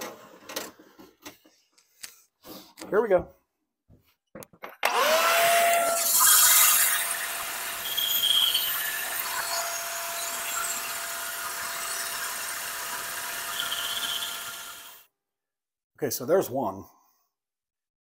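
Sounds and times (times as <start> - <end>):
bandsaw cutting wood: 4.8 - 15.0
bandsaw motor whine: 4.8 - 15.1.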